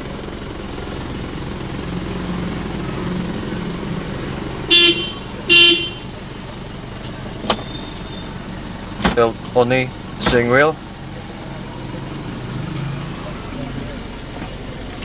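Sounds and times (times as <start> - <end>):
diesel engine idling: 0.0 - 15.0
car horn toots: 4.6 - 6.2.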